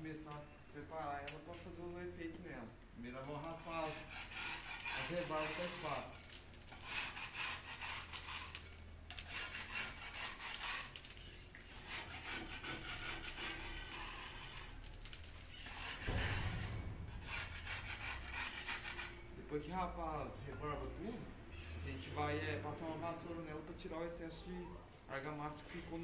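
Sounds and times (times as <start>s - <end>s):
putty knife scraping mortar: 3.4s - 11.1s, 11.7s - 14.9s, 15.5s - 19.2s.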